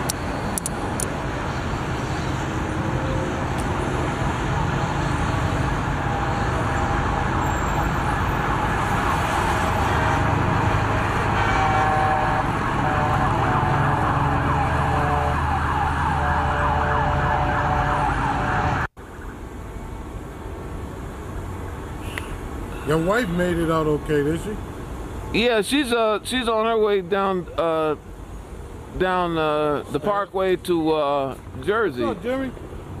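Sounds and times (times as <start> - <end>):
road traffic rumble: 0.0 - 33.0
sirens wailing: 2.4 - 19.5.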